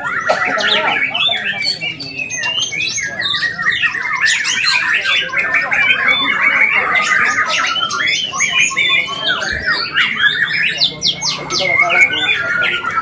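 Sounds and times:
songbirds whistling and chattering: 0:00.0 - 0:13.0.

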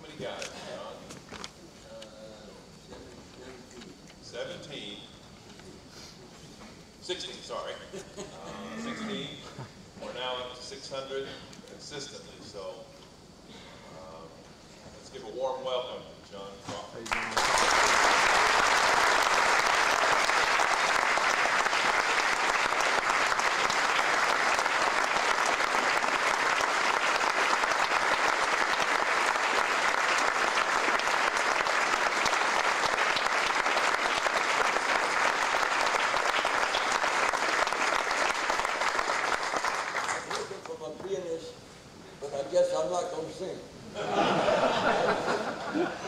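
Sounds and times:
large audience applauding: 0:17.0 - 0:40.7.

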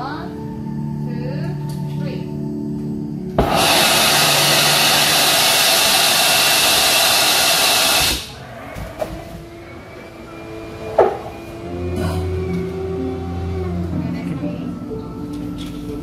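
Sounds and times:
airbags inflating rush of air: 0:03.4 - 0:08.4.

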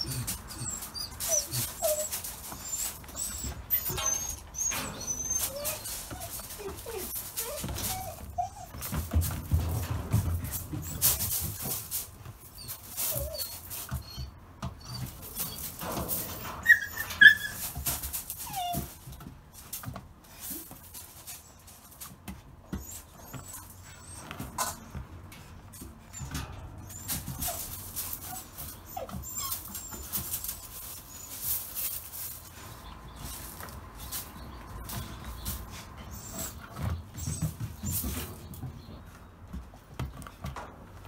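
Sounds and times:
paws scratching on rubber: 0:00.0 - 0:24.8
puppy whining: 0:00.0 - 0:40.6.

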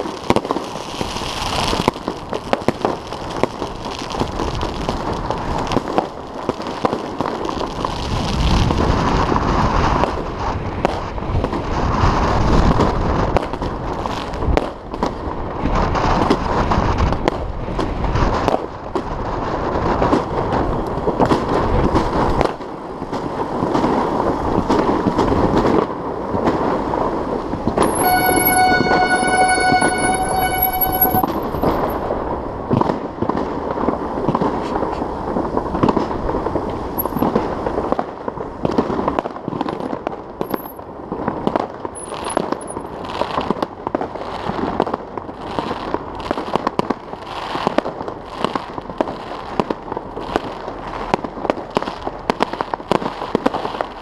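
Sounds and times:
bike tyres rolling on snow: 0:00.0 - 0:27.7
fireworks popping and cracking: 0:00.0 - 0:54.0
horn-like tone: 0:27.8 - 0:32.0.

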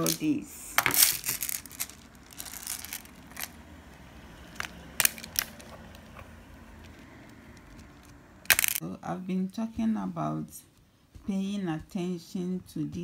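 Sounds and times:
cutters snipping beads: 0:04.5 - 0:08.8.

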